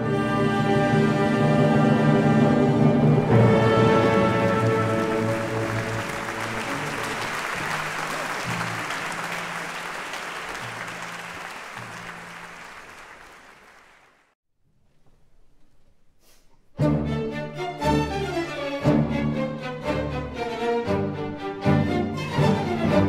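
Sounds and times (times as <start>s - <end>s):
audience applauding: 3.6s - 14.4s.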